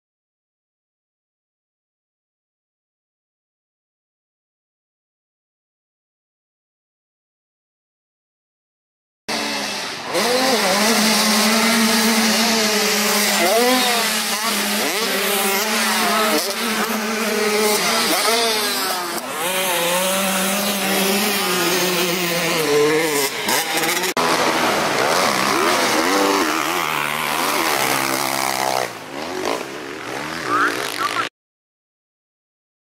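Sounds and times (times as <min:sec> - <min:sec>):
dirt bike engines revving: 0:09.3 - 0:31.3.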